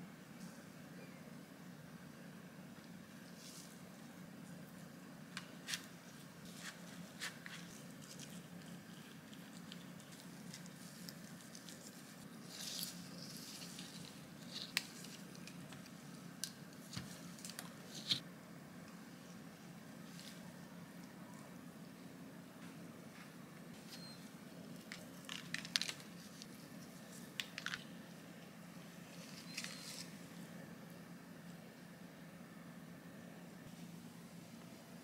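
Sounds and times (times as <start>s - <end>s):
faint steady hum: 0.0s - 35.0s.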